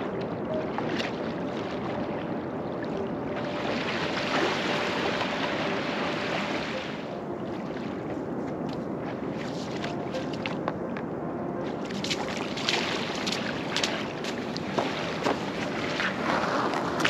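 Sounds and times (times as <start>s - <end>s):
small waves washing on sand: 3.3s - 7.0s, 11.8s - 17.0s
kayak hull rushing onto beach: 14.8s - 17.0s.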